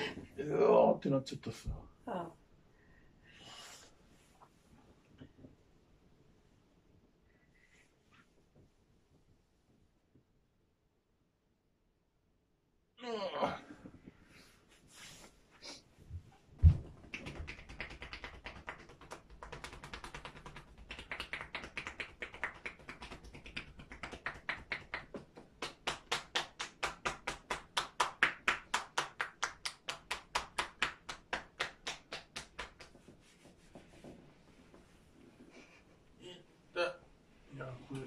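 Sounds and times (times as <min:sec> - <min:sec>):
hands slapping a back: 0:16.6 - 0:34.9.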